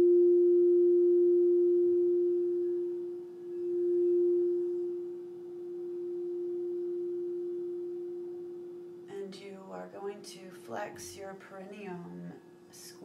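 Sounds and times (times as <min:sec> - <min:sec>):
singing bowl ringing: 0:00.0 - 0:09.1.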